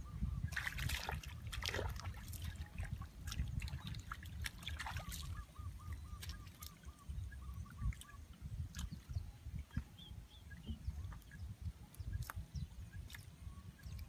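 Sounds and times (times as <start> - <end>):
hands splashing in water and mud: 0.5 - 5.4
faint chirping call: 5.1 - 14.0.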